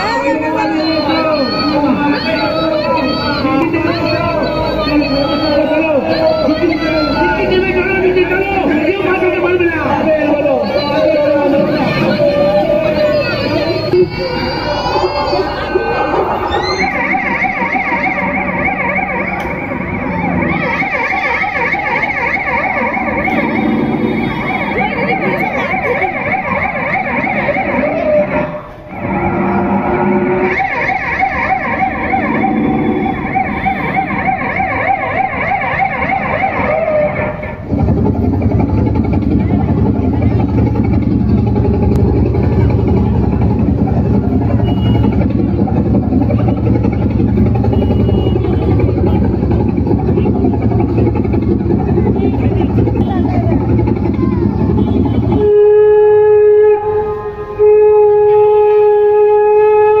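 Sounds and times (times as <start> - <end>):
sirens warbling: 0.0 - 60.0
low engine-like rumble: 37.1 - 59.3
wind instrument held notes: 54.7 - 60.0.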